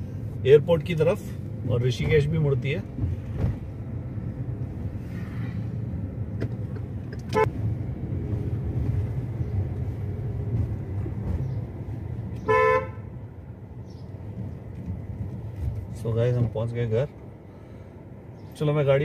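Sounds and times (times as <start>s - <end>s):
low rumble of car driving: 0.0s - 19.0s
car horn honking: 7.2s - 7.5s, 12.4s - 13.2s.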